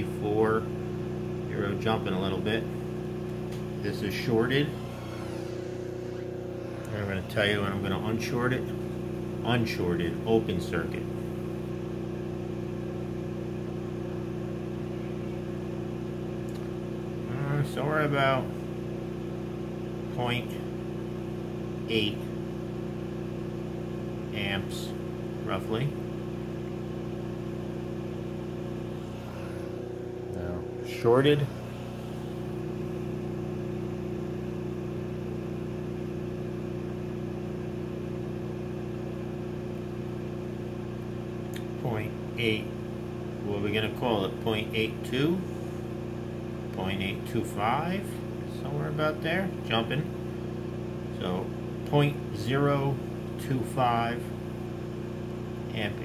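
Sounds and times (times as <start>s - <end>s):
steady electrical tone: 0.0s - 12.4s, 24.3s - 35.6s
generator rotor humming: 0.0s - 56.0s.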